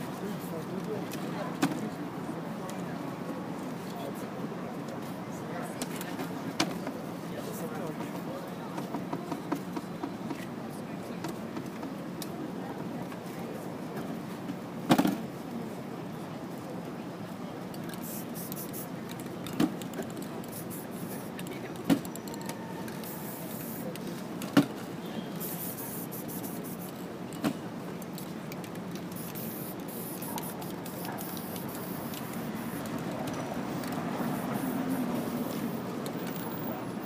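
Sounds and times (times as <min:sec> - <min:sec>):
street background noise: 0:00.0 - 0:37.0
spray-paint cans hissing: 0:17.9 - 0:19.0, 0:20.1 - 0:22.2, 0:22.9 - 0:23.9, 0:25.3 - 0:27.0, 0:29.0 - 0:36.6.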